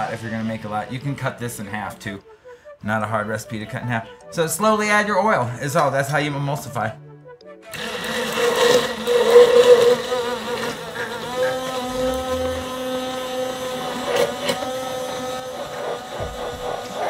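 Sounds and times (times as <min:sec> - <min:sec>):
stick blender whirring in glass jar: 0:07.7 - 0:17.0.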